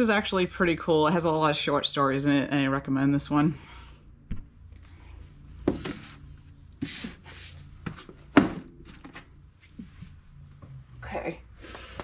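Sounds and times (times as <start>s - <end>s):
book sliding rub: 5.8s - 7.7s
books knocking on shelf: 7.8s - 9.2s.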